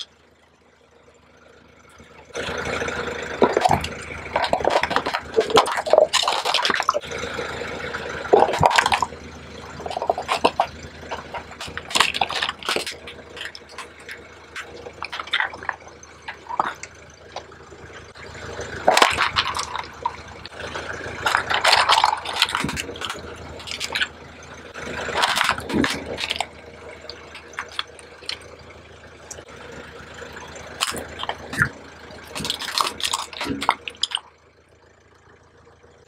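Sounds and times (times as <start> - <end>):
tyre crushing crackling plastic: 3.4 - 7.2, 7.9 - 17.5, 18.8 - 24.1, 24.9 - 28.5, 30.7 - 34.3.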